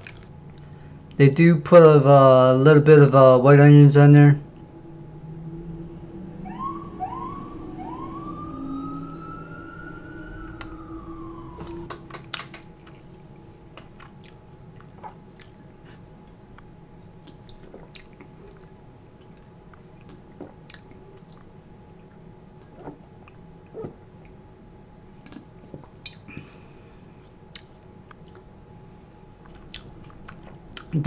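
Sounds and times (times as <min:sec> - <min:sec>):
soft chewing clicks: 0:00.0 - 0:01.2, 0:11.8 - 0:24.4, 0:25.1 - 0:31.0
siren wailing: 0:03.1 - 0:12.8.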